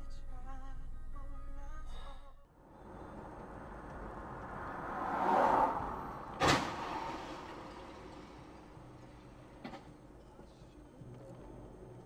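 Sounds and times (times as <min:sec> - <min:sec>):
road and traffic noise: 0:02.5 - 0:12.0
car collision bang: 0:03.1 - 0:08.9.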